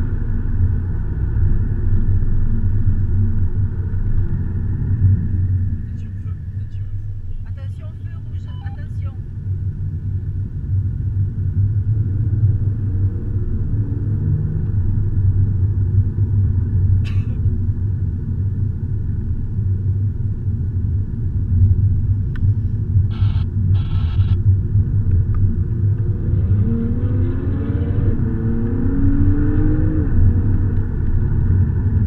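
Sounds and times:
car engine and tyre rumble: 0:00.0 - 0:32.0.

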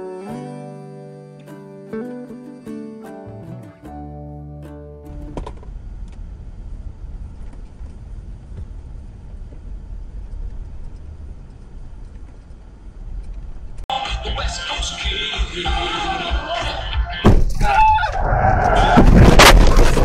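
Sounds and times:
car engine and tyres rumbling: 0:05.1 - 0:13.9.

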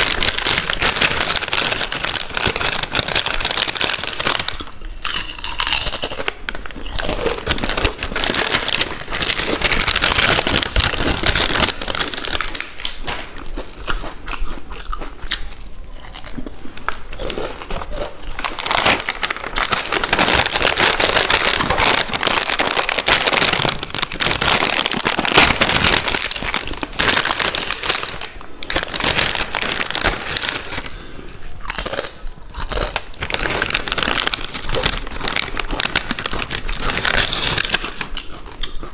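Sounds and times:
crunching potato chips: 0:00.0 - 0:38.9.

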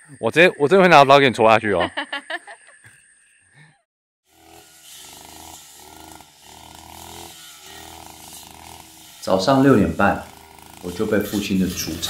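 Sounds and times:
woman laughing: 0:01.7 - 0:02.9
grass trimmer engine running: 0:04.3 - 0:12.0.

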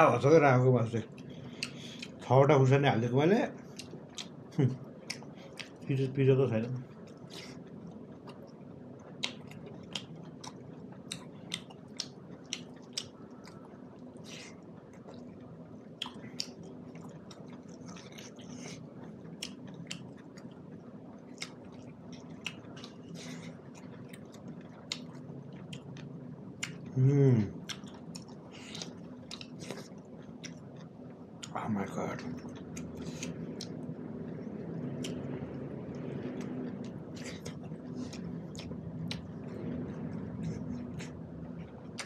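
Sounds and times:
low steady hum: 0:00.0 - 0:42.0
close-up chewing: 0:01.1 - 0:02.2, 0:03.6 - 0:05.9, 0:06.9 - 0:27.0, 0:27.6 - 0:42.0.

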